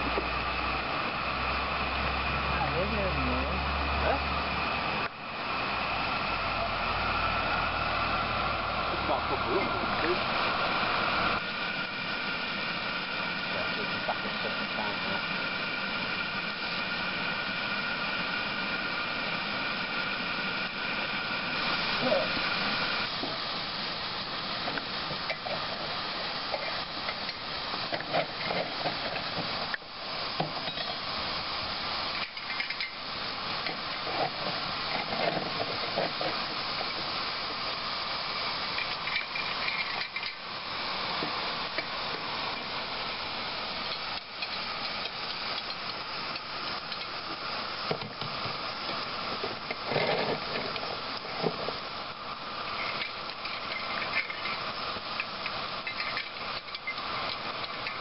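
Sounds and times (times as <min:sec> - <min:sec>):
steam hissing: 0:00.0 - 0:58.0
metal clinks and scrapes: 0:38.8 - 0:40.4.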